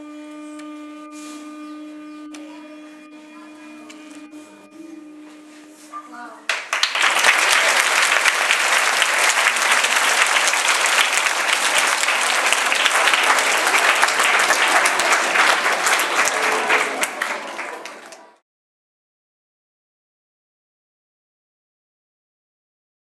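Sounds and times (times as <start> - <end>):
crowd of children applauding: 6.5 - 18.4.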